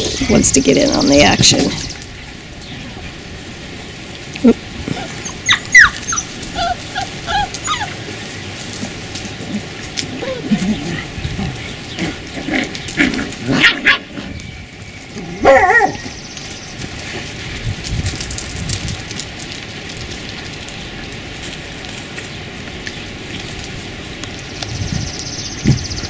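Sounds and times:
dogs yipping and barking: 4.4 - 16.6
dog whining yelp: 4.9 - 8.0, 15.4 - 16.1.

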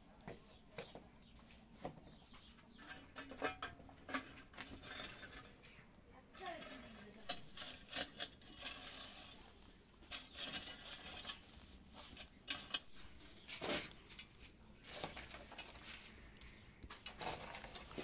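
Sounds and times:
coals raked with stick: 0.0 - 18.0
wood fire crackling: 0.0 - 18.0.

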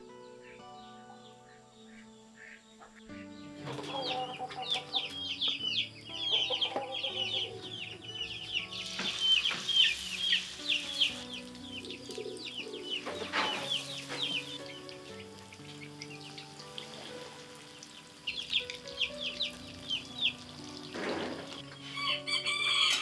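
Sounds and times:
soft background music: 0.0 - 23.0
chickens clucking: 0.4 - 23.0
food sizzling in hot oil: 8.6 - 21.6.

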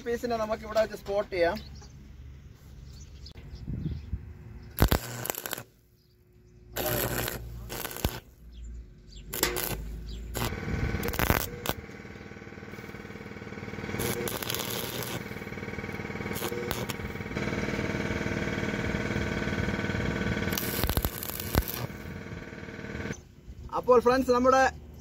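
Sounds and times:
welding arc crackling: 4.8 - 5.8, 6.8 - 8.4, 9.3 - 23.2
steady hum: 9.3 - 23.2.

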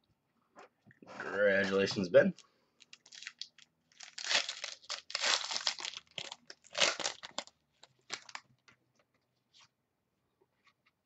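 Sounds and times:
plastic sleeve crinkling: 2.4 - 8.8.

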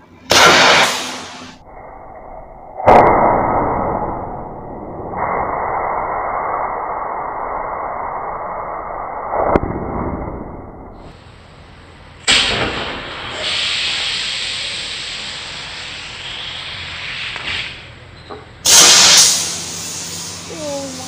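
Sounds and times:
firework rocket blast: 0.3 - 1.6, 12.2 - 17.9, 18.6 - 21.0
rocket charge rushing hiss: 0.3 - 1.6, 12.3 - 17.9, 18.6 - 21.0
short sharp crack: 0.3 - 1.6, 12.3 - 13.7.

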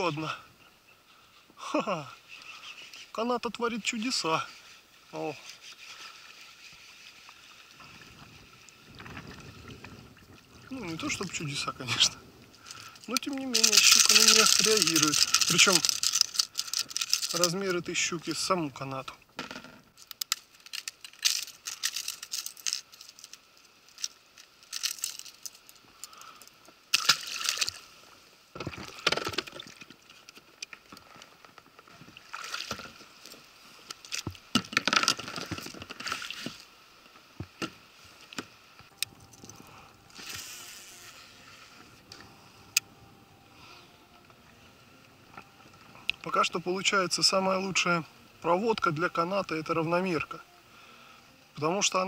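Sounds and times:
water sloshing: 5.4 - 18.5.

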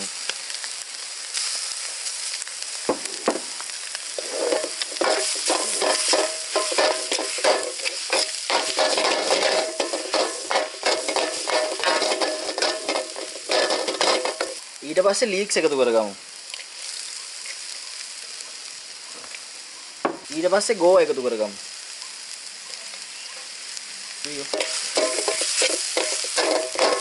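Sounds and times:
vegetables sizzling in butter: 0.0 - 27.0
steel ladle scraping a wok: 4.2 - 14.6, 24.5 - 27.0.

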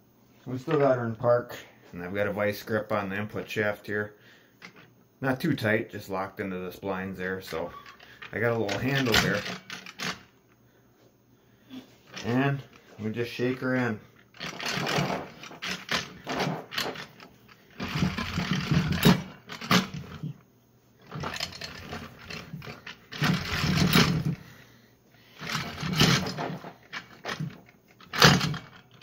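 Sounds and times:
metal parts rattling and clanking: 7.4 - 10.3, 14.2 - 20.4, 21.0 - 24.5, 25.3 - 29.0.

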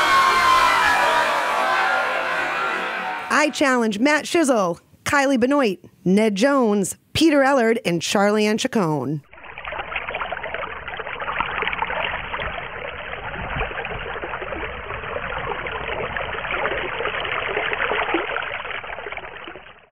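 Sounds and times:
running trickling water: 9.2 - 19.9.

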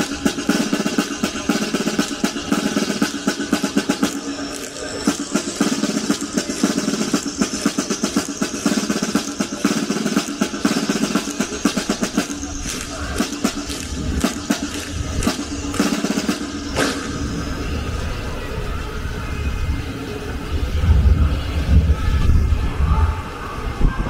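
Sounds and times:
snare drum rolls: 0.0 - 17.6.

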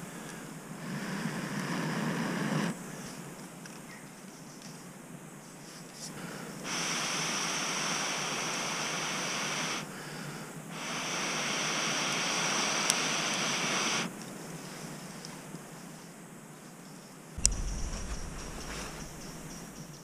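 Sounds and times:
breath blowing through metal tube: 17.4 - 20.0.

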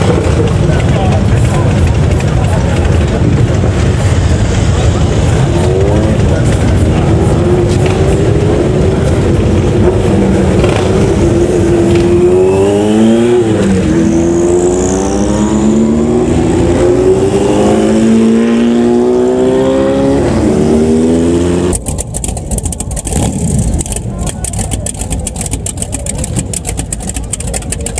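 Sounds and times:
motorcycle engines accelerating: 0.0 - 27.9
sharp clicks: 21.7 - 27.9.

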